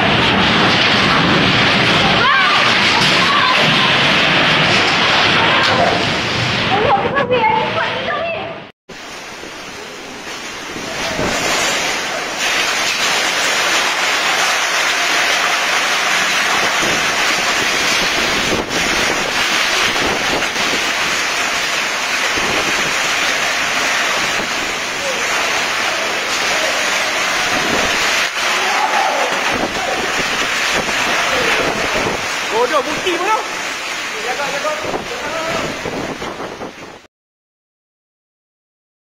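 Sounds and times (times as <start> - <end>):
heavy rain rushing: 0.0 - 37.1
wind buffeting microphone: 16.4 - 25.2, 26.4 - 28.3, 29.3 - 34.0, 34.6 - 37.1.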